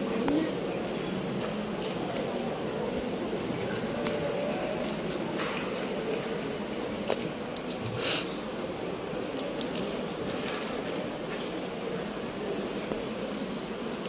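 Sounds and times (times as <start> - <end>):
air conditioning hum: 0.0 - 14.0
brief hiss: 7.9 - 8.3.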